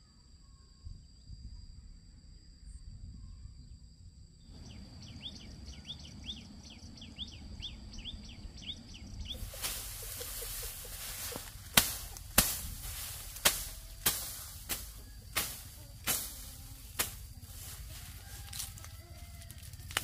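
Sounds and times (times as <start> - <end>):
blade chopping lemongrass: 9.4 - 20.0.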